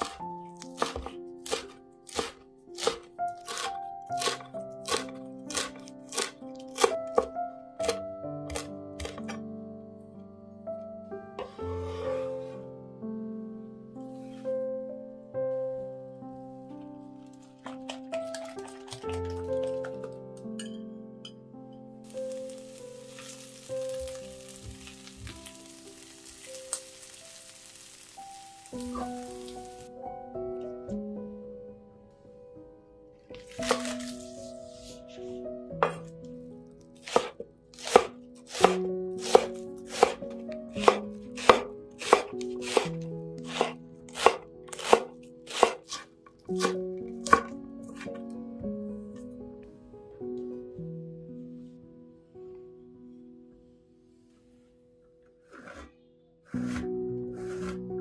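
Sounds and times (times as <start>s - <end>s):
knife chopping on wooden board: 0.0s - 9.4s, 33.4s - 34.1s, 35.8s - 36.1s, 37.0s - 48.1s
soft background music: 0.0s - 58.0s
food sizzling in hot oil: 22.1s - 29.9s.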